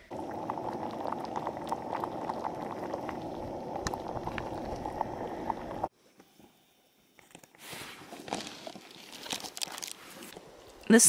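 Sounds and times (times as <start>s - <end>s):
pot boiling on stove: 0.0s - 5.9s.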